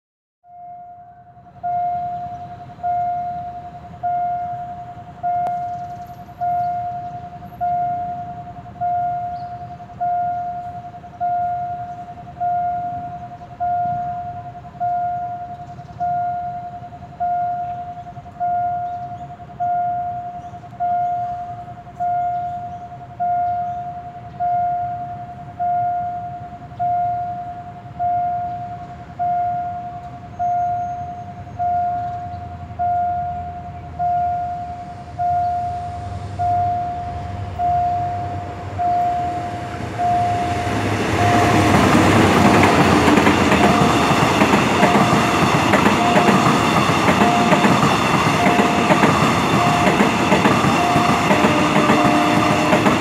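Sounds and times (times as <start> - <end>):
railway warning bell ringing: 0.4 - 53.0
low hum: 31.6 - 52.8.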